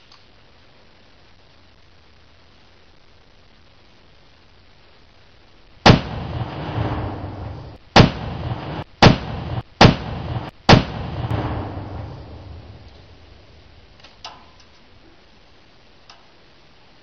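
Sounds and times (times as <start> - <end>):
can exploding with loud bangs: 5.8 - 13.2.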